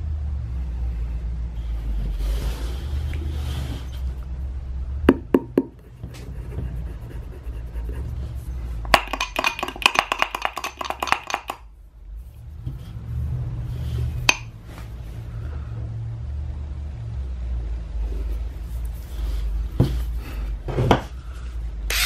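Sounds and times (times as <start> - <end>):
steady low rumble: 4.0 - 9.0.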